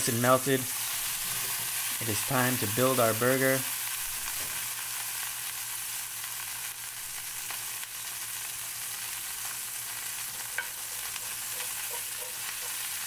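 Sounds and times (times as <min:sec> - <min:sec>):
burger patty sizzling in a skillet: 0:00.0 - 0:13.0
spatula tapping a pan: 0:10.5 - 0:10.8.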